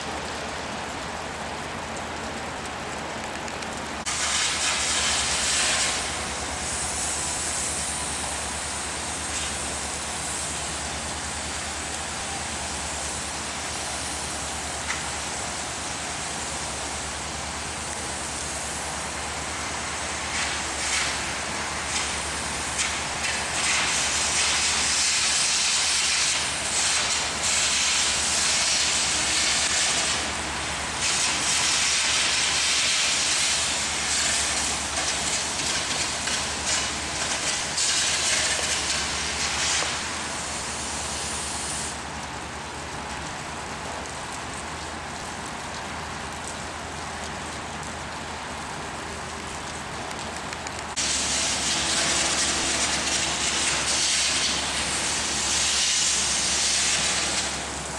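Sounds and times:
electric arc welding hiss: 0:04.0 - 0:42.1, 0:50.9 - 0:57.9.

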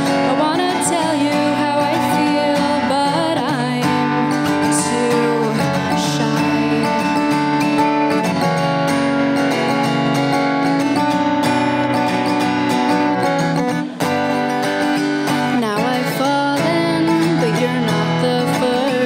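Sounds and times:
woman singing: 0:00.0 - 0:07.8, 0:15.2 - 0:19.0
strummed acoustic guitar: 0:00.0 - 0:19.0.

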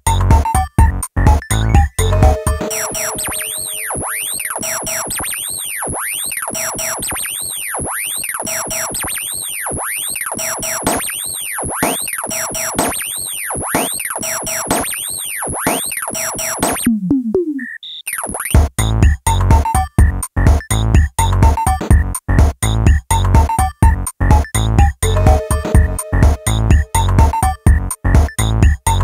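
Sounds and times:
electronic synthesizer music: 0:01.7 - 0:05.2, 0:25.0 - 0:27.9.

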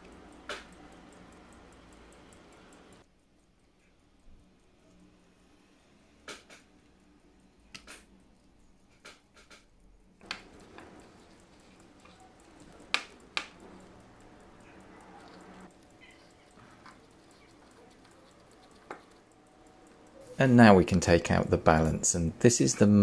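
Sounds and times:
low room hiss: 0:00.0 - 0:23.0
metal tweezers clicking and tapping: 0:05.7 - 0:20.3.

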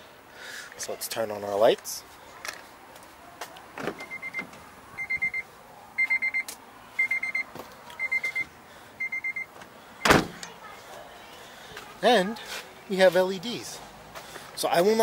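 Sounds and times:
dashboard chime beeping: 0:04.0 - 0:04.4, 0:05.0 - 0:05.4, 0:06.0 - 0:09.5.

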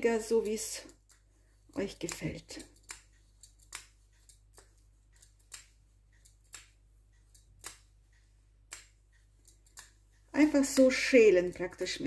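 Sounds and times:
peeler scraping chocolate: 0:10.4 - 0:12.0.

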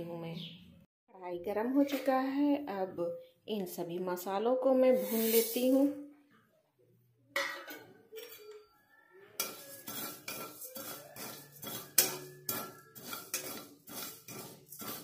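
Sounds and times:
metal spatula scraping a pan: 0:04.9 - 0:06.0, 0:07.4 - 0:08.6, 0:09.3 - 0:15.0
seeds dry-roasting: 0:05.0 - 0:05.9, 0:09.4 - 0:15.0.

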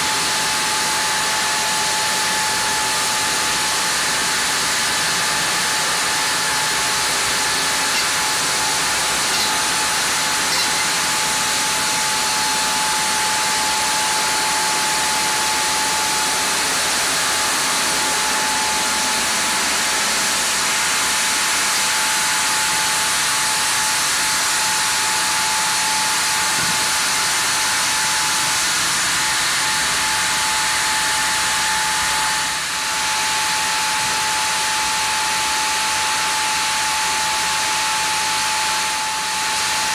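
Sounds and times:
band saw sawing log: 0:02.3 - 0:18.4.

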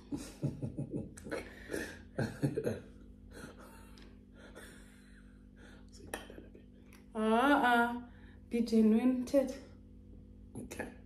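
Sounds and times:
soft breathy laughter: 0:00.0 - 0:05.7
quiet breathing: 0:03.3 - 0:06.1, 0:08.0 - 0:08.5.

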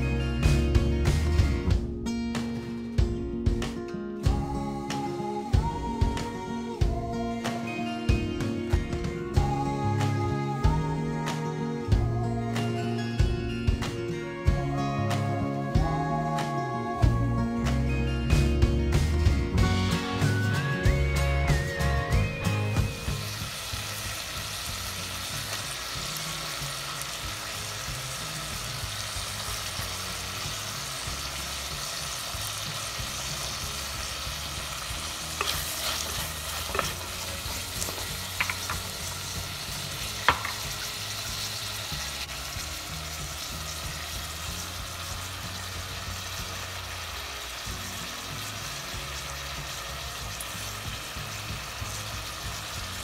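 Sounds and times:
vegetables sizzling in a pot: 0:00.0 - 0:01.8, 0:18.4 - 0:53.0.

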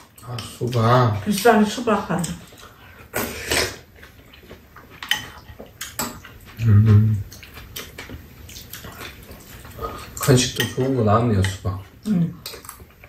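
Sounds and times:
low hummed voice: 0:06.6 - 0:07.2
metal spoons clicking against bowls: 0:10.2 - 0:11.7.

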